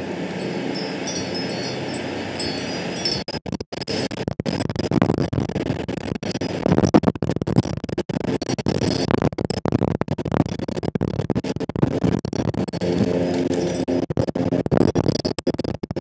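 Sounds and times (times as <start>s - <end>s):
wind buffeting microphone: 0.0s - 3.3s.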